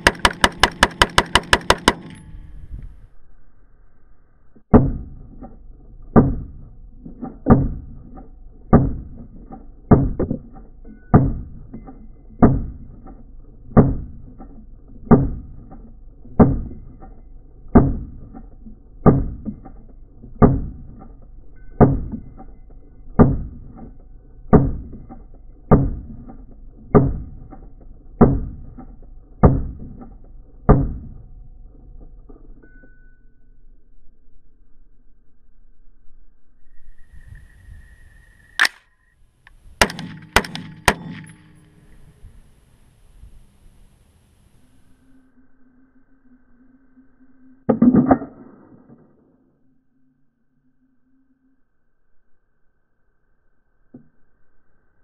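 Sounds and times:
slowed rifle shots: 0.0 - 2.4, 4.6 - 32.8, 38.6 - 38.9, 39.5 - 42.4, 47.7 - 49.7.

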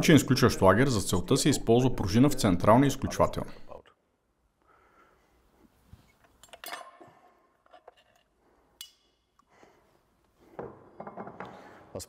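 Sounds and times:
metal parts clinking: 6.2 - 7.0.

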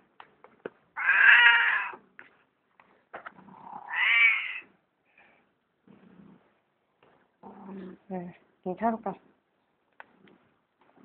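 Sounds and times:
cat meowing: 1.0 - 2.0, 3.8 - 4.7.

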